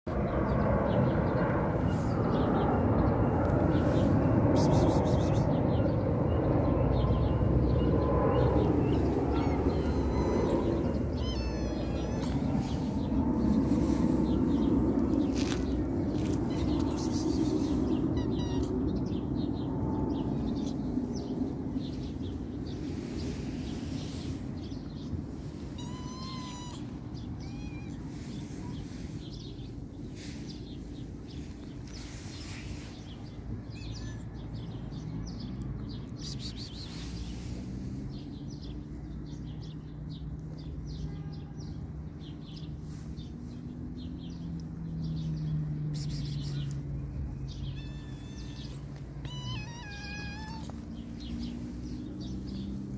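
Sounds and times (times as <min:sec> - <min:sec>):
bird chirps: 0:00.9 - 0:37.4, 0:38.0 - 0:52.9
cat meowing: 0:08.9 - 0:13.2, 0:16.1 - 0:19.1, 0:25.6 - 0:28.5, 0:33.6 - 0:34.4, 0:47.6 - 0:51.2.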